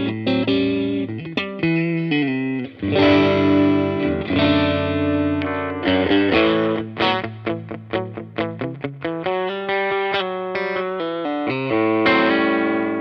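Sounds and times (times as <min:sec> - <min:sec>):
electric guitar chords and notes: 0:00.0 - 0:13.0.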